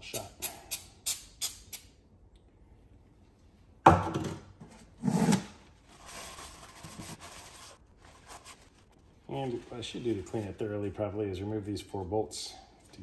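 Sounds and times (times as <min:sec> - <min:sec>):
paper towel rubbing: 0:05.8 - 0:10.6.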